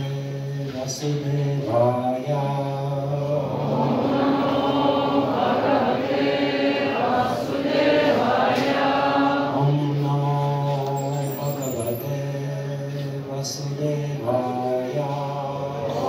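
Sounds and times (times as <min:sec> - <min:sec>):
group of voices chanting: 0:03.5 - 0:09.6.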